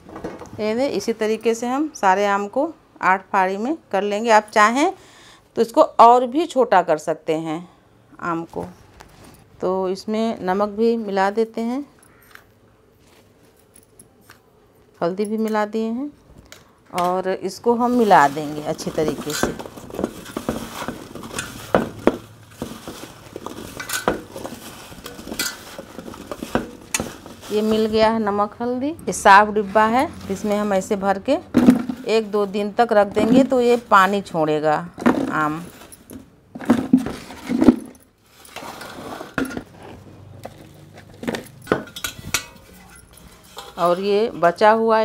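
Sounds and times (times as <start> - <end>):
fruit pieces clacking in steel bowl: 18.7 - 27.8.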